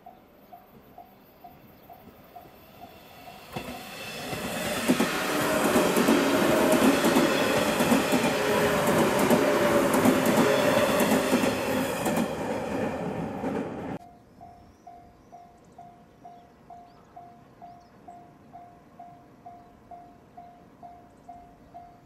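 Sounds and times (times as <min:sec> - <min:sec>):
electric train running hum: 0:00.0 - 0:22.0
wheels clacking over rail joints: 0:03.3 - 0:14.0.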